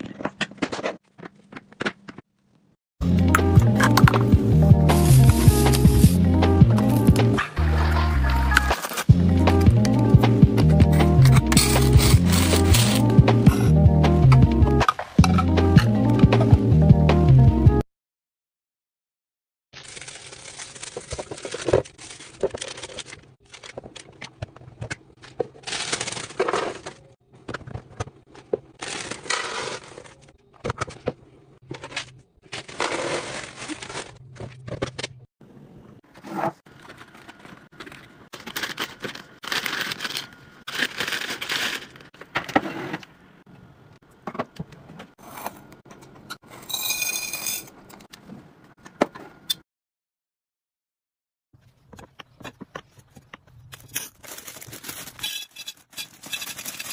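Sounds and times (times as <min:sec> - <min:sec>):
plastic bag crinkling: 0:19.8 - 0:23.7, 0:36.7 - 0:42.1, 0:54.0 - 0:56.9.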